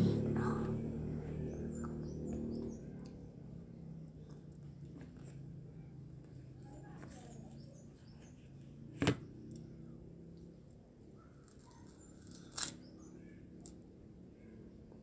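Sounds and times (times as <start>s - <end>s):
low steady hum: 0.0s - 15.0s
crunching of crispy cracker: 11.5s - 12.8s.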